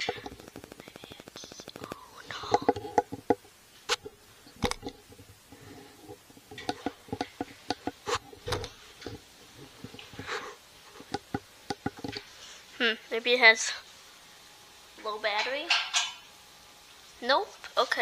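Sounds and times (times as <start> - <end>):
plastic clicks and taps: 6.5 - 9.2, 11.0 - 12.3.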